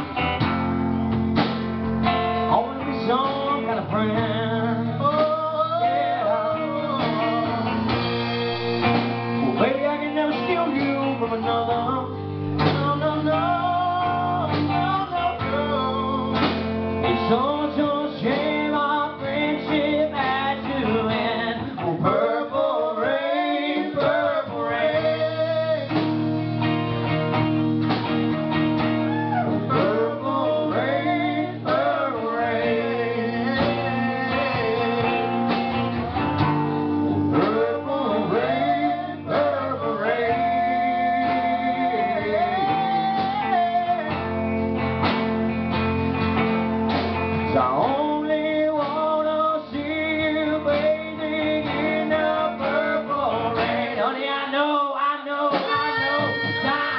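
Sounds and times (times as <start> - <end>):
acoustic guitar chords: 0.0 - 56.9
man singing: 2.3 - 7.9, 9.4 - 26.1, 29.4 - 35.8, 37.3 - 44.4, 47.5 - 56.9.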